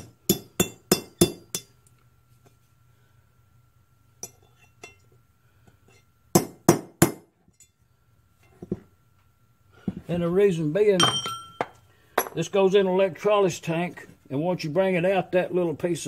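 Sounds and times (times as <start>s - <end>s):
hammer striking metal: 0.0s - 1.7s, 11.0s - 12.4s.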